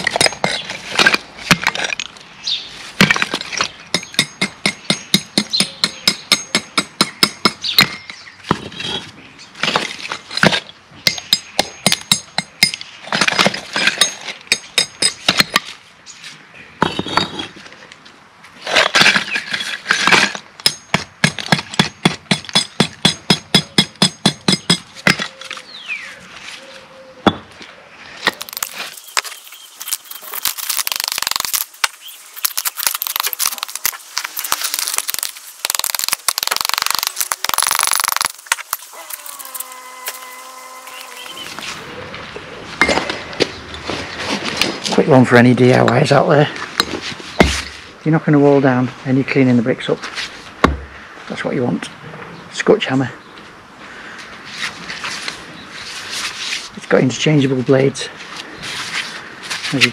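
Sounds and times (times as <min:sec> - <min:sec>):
hammer chipping mortar off bricks: 0:00.0 - 0:02.1, 0:03.0 - 0:08.7, 0:09.6 - 0:15.7, 0:18.8 - 0:25.3, 0:28.2 - 0:39.6.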